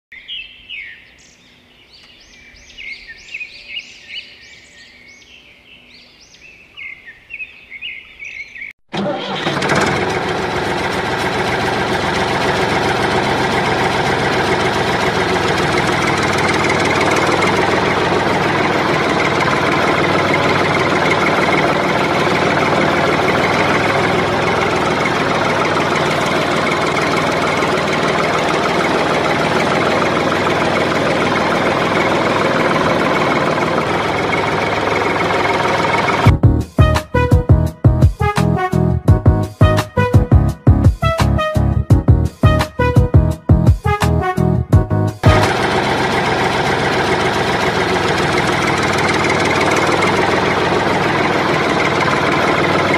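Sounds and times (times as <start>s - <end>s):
birds chirping: 0.1s - 8.8s
tractor engine running: 8.9s - 38.4s, 44.8s - 52.9s.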